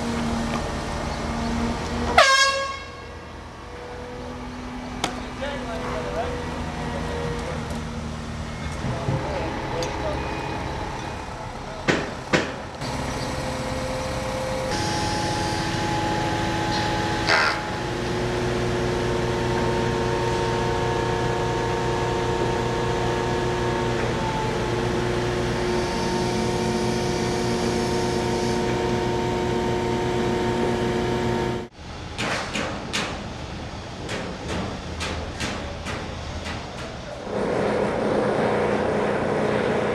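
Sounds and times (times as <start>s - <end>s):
construction machinery engines humming: 0.0s - 39.9s.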